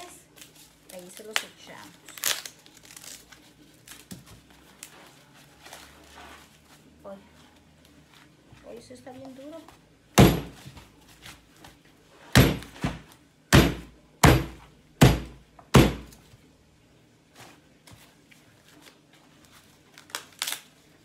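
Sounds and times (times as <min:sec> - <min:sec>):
knife chopping on wooden board: 0:10.2 - 0:10.6, 0:12.3 - 0:16.2.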